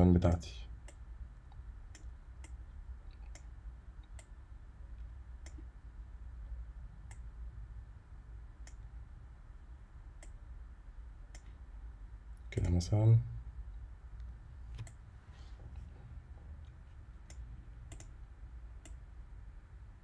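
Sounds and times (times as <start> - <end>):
low steady hum: 0.0 - 20.0
computer mouse clicks: 5.4 - 5.7, 8.6 - 8.9, 14.7 - 15.0, 17.2 - 18.2.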